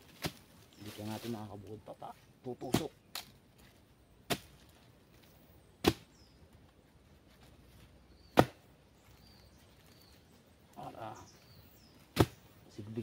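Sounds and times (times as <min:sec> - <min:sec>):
chopping blows on wood: 0:02.6 - 0:03.3, 0:04.2 - 0:04.6, 0:05.8 - 0:06.1, 0:08.3 - 0:08.6, 0:12.1 - 0:12.4.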